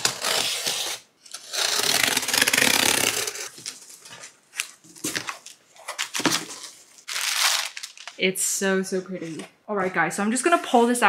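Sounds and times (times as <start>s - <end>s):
box cutter slicing tape: 0.0s - 3.6s.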